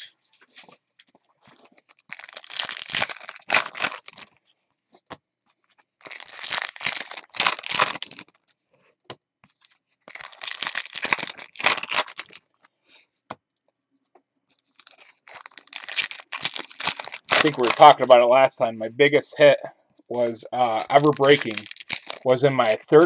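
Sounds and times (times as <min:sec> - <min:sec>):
trading card packs rustling: 0:00.1 - 0:08.4, 0:09.5 - 0:12.6, 0:14.5 - 0:18.3, 0:20.0 - 0:23.0.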